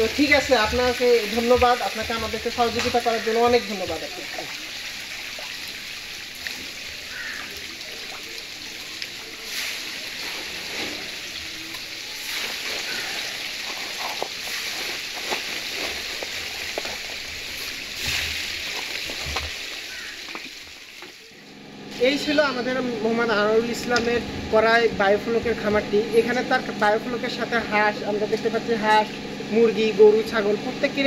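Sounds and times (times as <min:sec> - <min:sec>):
bubbling fizzing water in tank: 0:00.0 - 0:22.2.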